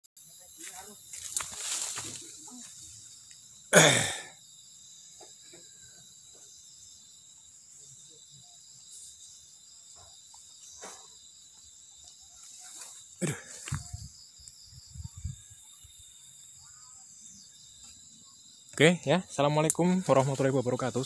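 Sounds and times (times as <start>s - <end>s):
crickets chirring: 0.2s - 21.0s.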